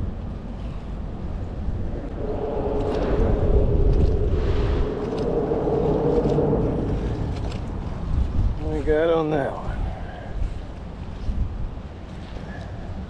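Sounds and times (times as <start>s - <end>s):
low rumble: 1.1s - 9.1s
engine droning: 1.6s - 8.9s.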